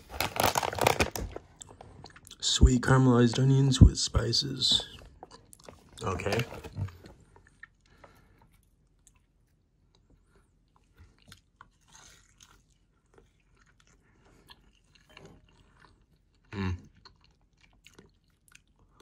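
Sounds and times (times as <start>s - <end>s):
person chewing: 0.2s - 2.4s, 5.1s - 6.0s, 7.2s - 19.0s.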